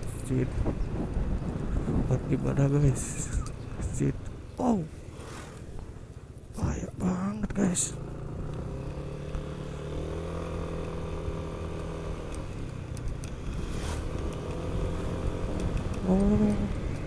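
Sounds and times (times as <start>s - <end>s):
scooter engine running: 7.0s - 17.0s.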